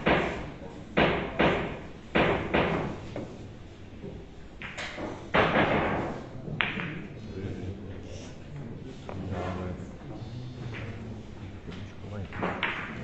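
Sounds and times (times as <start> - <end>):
billiard balls clacking: 4.0 - 7.1, 12.2 - 13.0.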